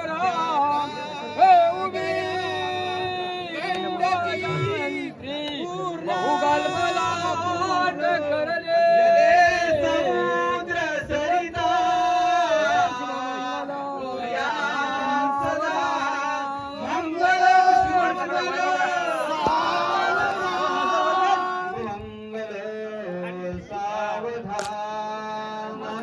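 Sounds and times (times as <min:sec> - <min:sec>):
man chanting: 0:00.0 - 0:18.2.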